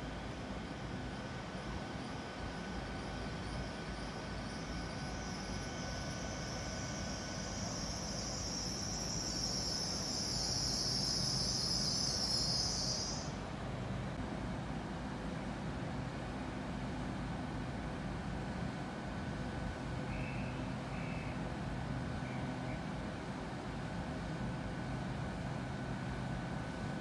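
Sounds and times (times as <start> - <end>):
high-pitched brake squeal: 3.1 - 13.4.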